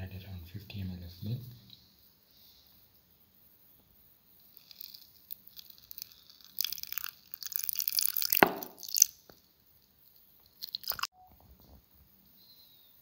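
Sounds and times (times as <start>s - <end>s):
milk pouring into steel jar: 4.5s - 9.2s.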